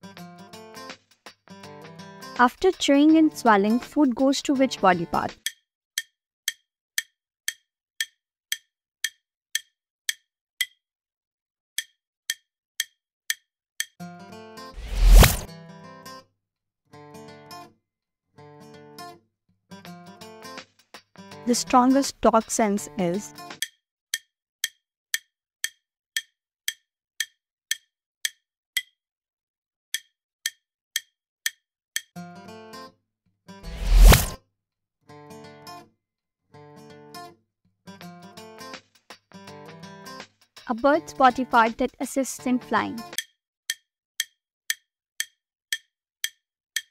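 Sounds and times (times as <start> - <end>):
countdown timer ticking: 2.4 - 10.8, 40.7 - 46.9.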